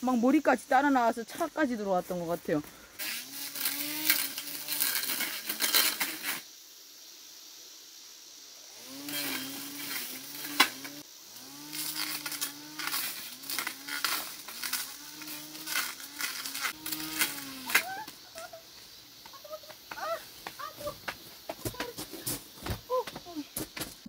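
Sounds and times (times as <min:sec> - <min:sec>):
grass trimmer motor: 0:03.0 - 0:06.4, 0:08.7 - 0:17.9
cut stems crackling: 0:11.6 - 0:18.5.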